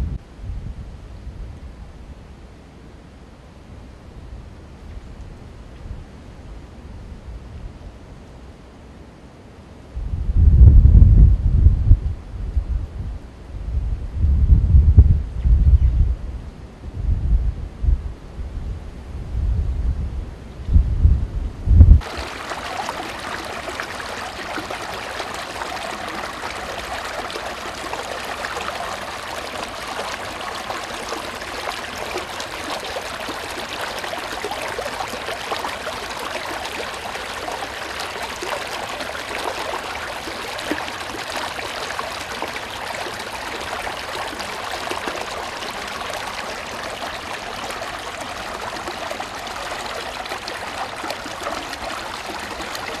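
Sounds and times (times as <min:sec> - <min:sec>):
brook running over stones: 0:22.0 - 0:53.0.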